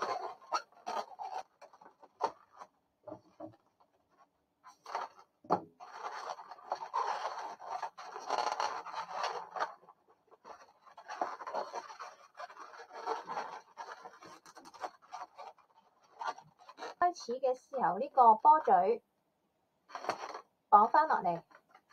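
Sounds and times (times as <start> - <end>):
balloons rubbing and scraping: 0.0 - 18.9, 19.9 - 21.9.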